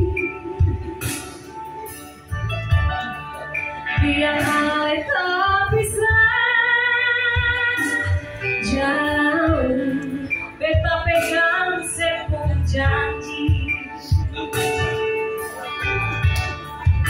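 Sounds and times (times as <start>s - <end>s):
woman singing into a microphone: 0.0s - 1.5s, 3.8s - 14.6s
musical accompaniment: 0.0s - 17.0s.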